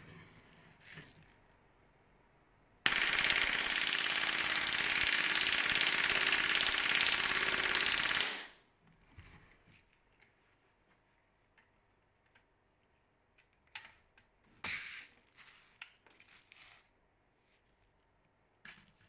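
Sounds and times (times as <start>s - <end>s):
airsoft gun full-auto burst: 2.9s - 8.6s.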